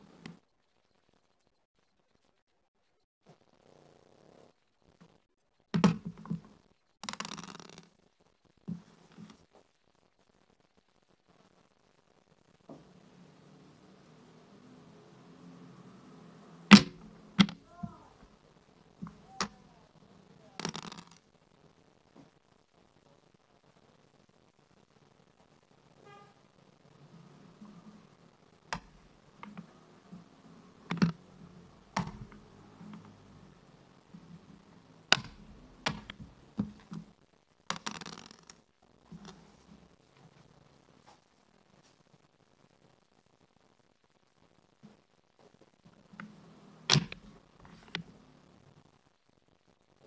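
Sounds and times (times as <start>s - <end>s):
checkers clacking on a wooden board: 5.8s - 7.9s, 16.6s - 18.2s, 19.0s - 21.2s, 28.6s - 33.4s, 35.0s - 37.1s, 37.7s - 38.6s
dice rattling across a board: 7.0s - 7.9s, 20.6s - 21.2s, 37.7s - 38.6s.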